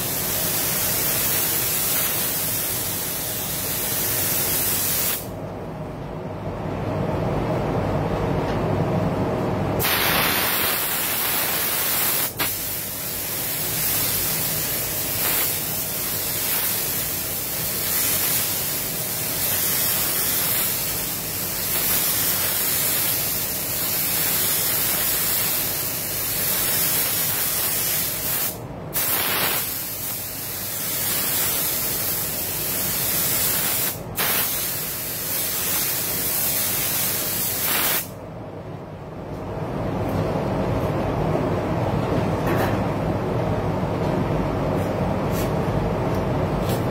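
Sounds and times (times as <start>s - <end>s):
spray gun hissing: 0.0s - 5.3s, 9.8s - 38.2s.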